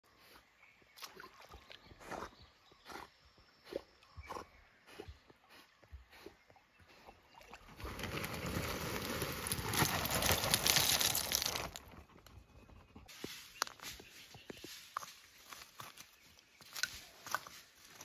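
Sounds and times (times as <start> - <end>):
charcoal pieces clattering: 8.1 - 11.8.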